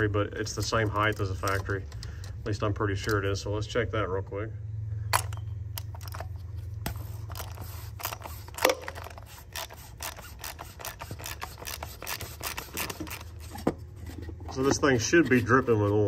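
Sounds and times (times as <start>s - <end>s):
steady low hum: 0.0s - 16.0s
hand ratchet clicking: 7.2s - 13.4s.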